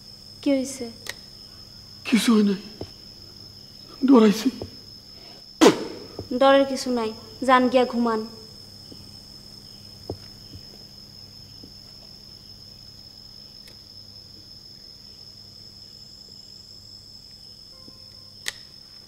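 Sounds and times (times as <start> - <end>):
crickets chirring: 0.0 - 19.0
sharp click: 18.1 - 18.7.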